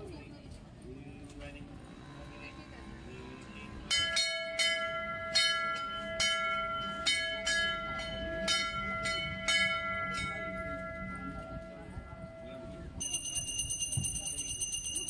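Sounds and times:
temple bell ringing: 3.8 - 15.0.

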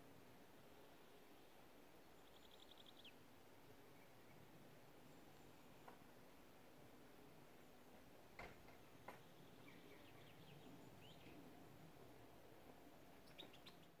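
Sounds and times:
faint steady hiss: 0.0 - 14.0
faint high bird chirps: 2.2 - 3.2, 9.2 - 11.4, 13.2 - 14.0.

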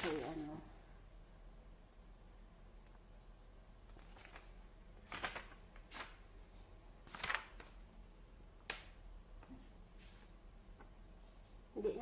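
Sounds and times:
paper rustling: 0.0 - 0.7, 3.8 - 7.9, 8.6 - 11.6.

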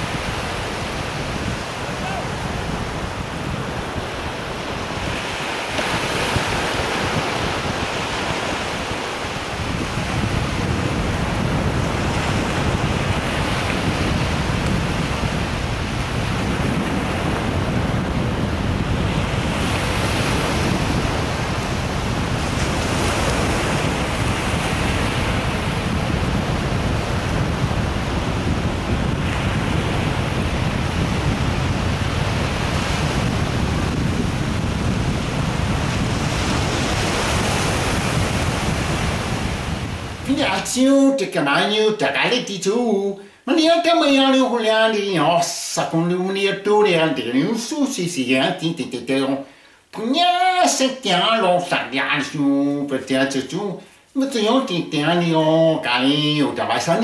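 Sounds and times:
wind rumble on microphone: 0.0 - 40.6
ocean surf breaking: 0.0 - 57.0.

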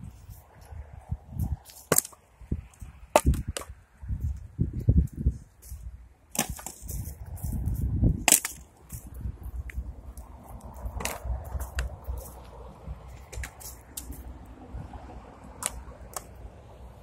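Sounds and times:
maul striking firewood: 1.5 - 2.2, 3.0 - 3.8, 6.3 - 7.1, 8.1 - 9.1.

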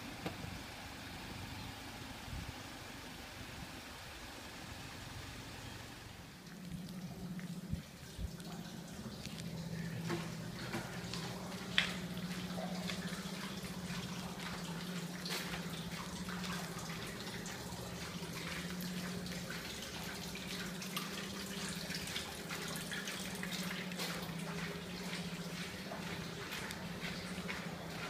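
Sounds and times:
steady low hum: 6.1 - 28.0
light drips or ticks: 6.4 - 28.0.

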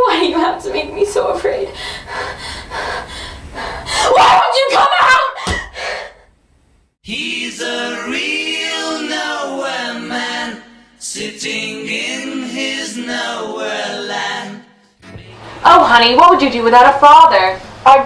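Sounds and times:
voices singing unaccompanied: 7.0 - 16.2.

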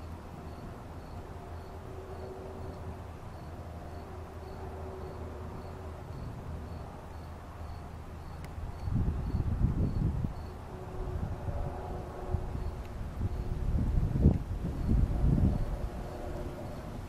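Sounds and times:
insects chirping: 0.0 - 17.0
low steady hum: 0.0 - 17.0.

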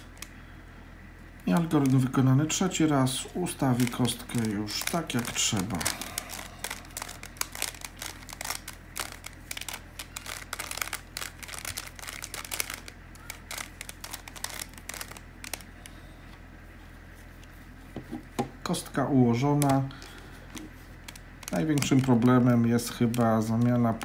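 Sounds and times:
plastic puzzle cube clicking: 3.8 - 15.7.

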